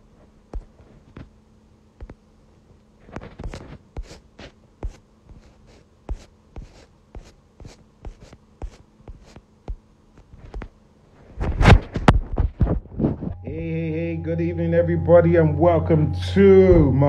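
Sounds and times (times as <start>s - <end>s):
scratchy rustle: 3.0s - 9.4s.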